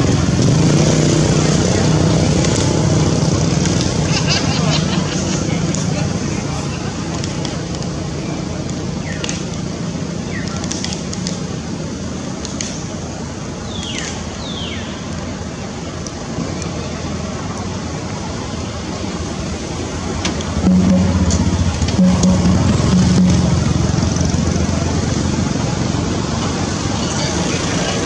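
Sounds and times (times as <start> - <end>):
steady rushing background noise: 0.0 - 28.0.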